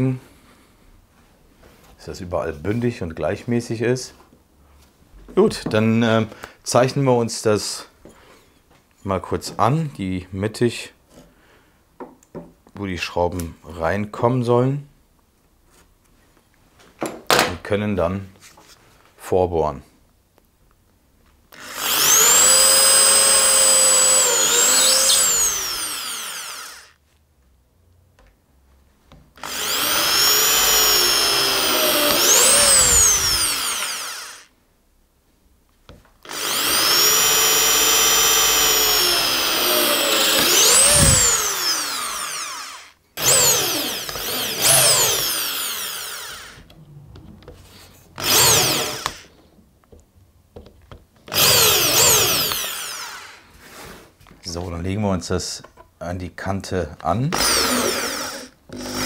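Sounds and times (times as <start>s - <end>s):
power drill boring into wood: 21.5s - 27.0s, 29.4s - 34.5s, 36.2s - 46.7s, 48.2s - 49.4s, 51.3s - 53.5s, 57.3s - 59.0s.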